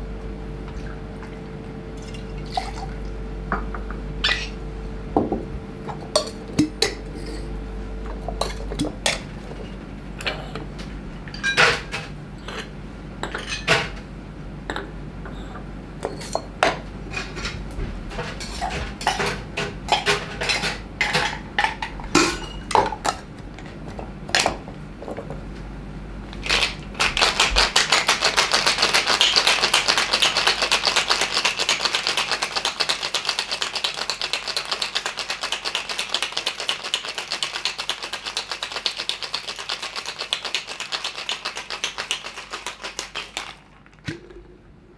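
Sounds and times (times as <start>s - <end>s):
cocktail shaker with ice rattling: 26.4s - 44.0s.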